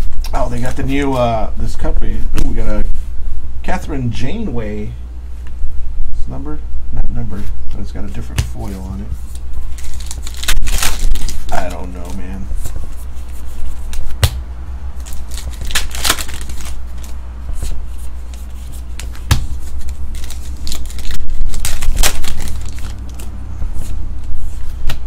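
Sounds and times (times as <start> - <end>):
steady low hum: 0.0 - 25.0
cards flipping and snapping: 8.4 - 12.2, 13.3 - 14.4, 15.0 - 23.4.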